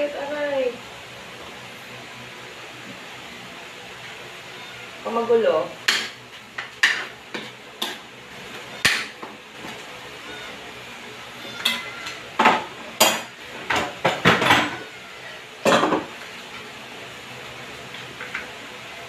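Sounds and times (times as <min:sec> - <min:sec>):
pots and dishes clattering: 0:11.4 - 0:14.9, 0:15.6 - 0:16.1.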